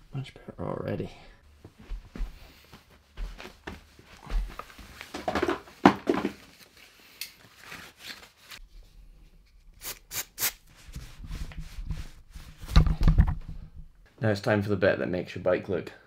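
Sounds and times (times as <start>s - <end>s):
cloth rag wiping bike frame: 9.8s - 12.7s.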